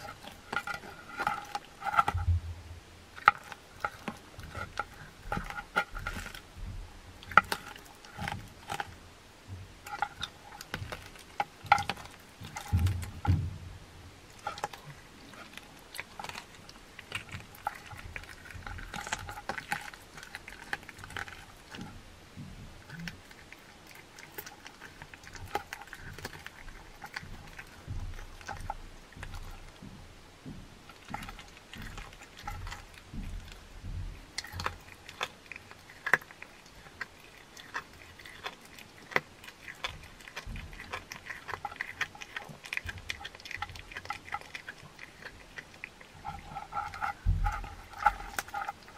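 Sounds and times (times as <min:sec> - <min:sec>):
bones crunching: 0:00.0 - 0:02.4, 0:03.1 - 0:09.0, 0:09.8 - 0:13.6, 0:14.3 - 0:29.9, 0:30.9 - 0:48.9
cat chewing and licking: 0:00.0 - 0:02.4, 0:03.0 - 0:48.9.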